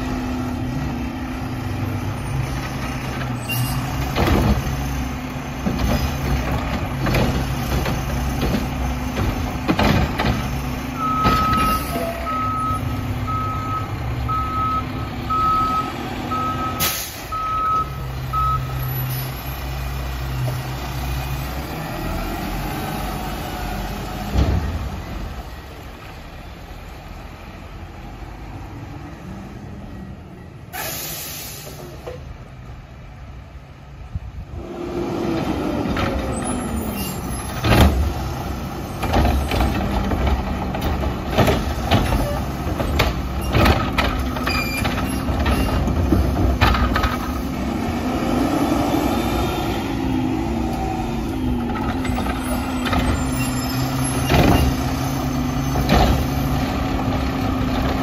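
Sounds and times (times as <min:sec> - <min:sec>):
air brake hiss: 0:16.8 - 0:17.3, 0:30.7 - 0:32.0.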